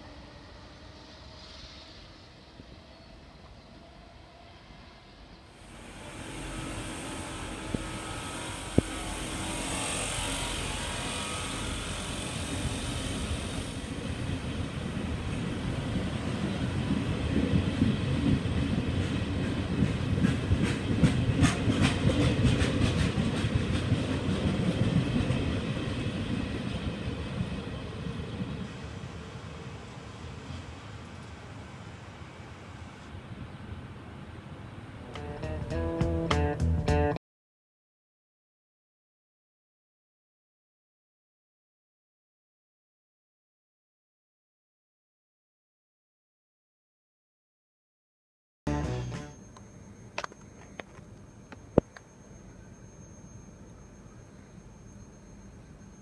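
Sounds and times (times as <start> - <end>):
train wheels rumbling on rail: 5.6 - 31.5.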